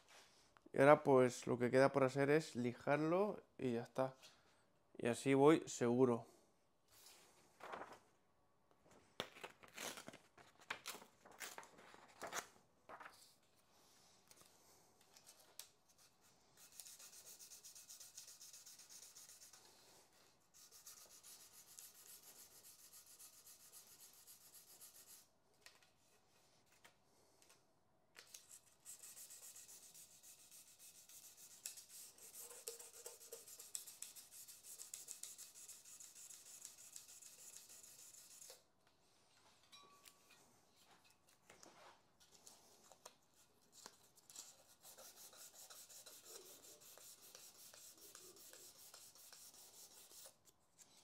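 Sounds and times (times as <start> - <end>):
sandpaper rubbing by hand: 16.6 - 19.7, 20.6 - 25.3, 28.8 - 38.6, 44.5 - 50.4.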